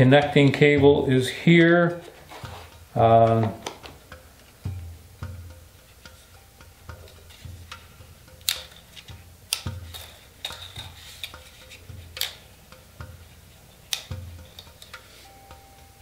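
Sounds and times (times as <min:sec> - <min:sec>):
plastic arms clicking into place: 0:08.4 - 0:12.4, 0:13.9 - 0:15.1.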